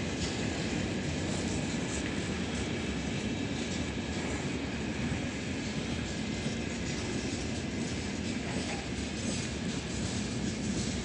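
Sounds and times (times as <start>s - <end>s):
freight train rumbling over bridge: 0.0s - 11.0s.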